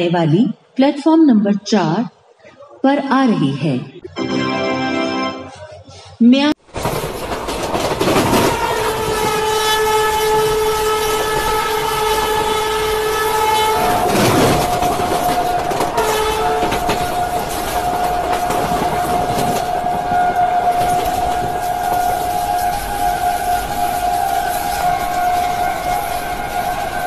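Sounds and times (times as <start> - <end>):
train wheels clattering on rails: 6.7 - 27.0
train horn blasts: 8.3 - 27.0.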